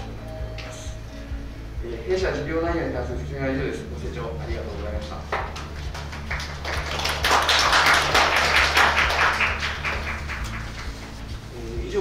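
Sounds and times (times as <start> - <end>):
audience applauding: 5.4 - 11.3.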